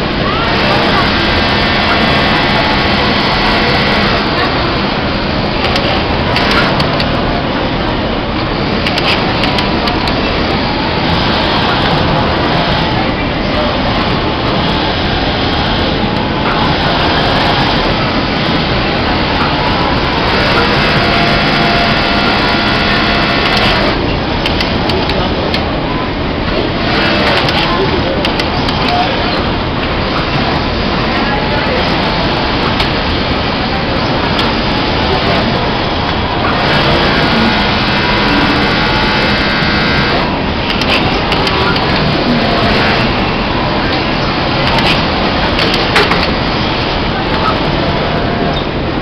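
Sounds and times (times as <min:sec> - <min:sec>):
industrial sewing machines running: 0:00.0 - 0:49.0.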